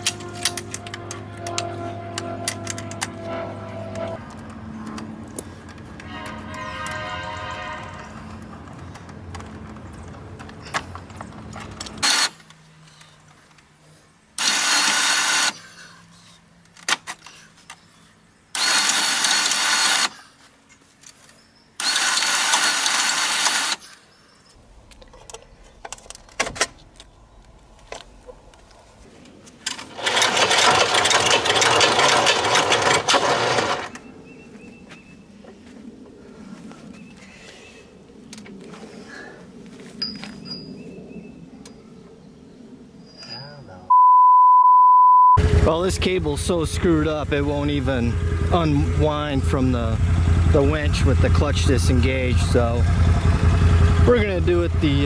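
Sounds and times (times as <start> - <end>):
handling clicks and knocks: 8.3 - 13.7
power tool running: 14.4 - 15.6, 18.6 - 20.2, 21.8 - 23.8, 29.8 - 34.0.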